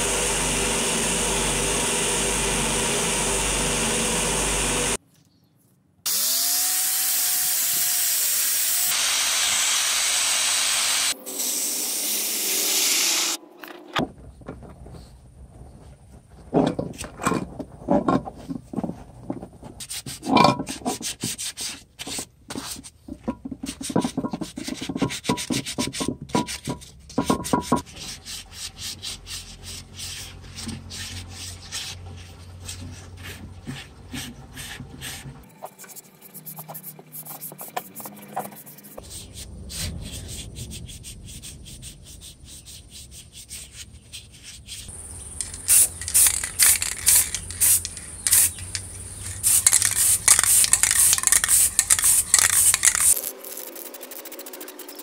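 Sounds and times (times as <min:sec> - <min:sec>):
spray-paint can hissing: 0:45.4 - 0:55.0.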